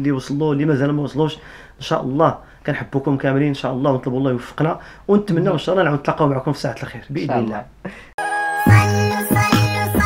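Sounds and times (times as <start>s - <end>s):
bright tune with heavy bass: 8.2s - 10.0s.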